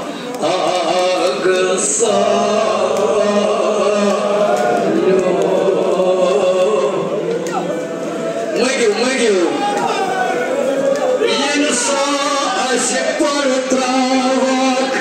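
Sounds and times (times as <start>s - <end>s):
man chanting into a microphone: 0.0s - 7.8s, 11.3s - 15.0s.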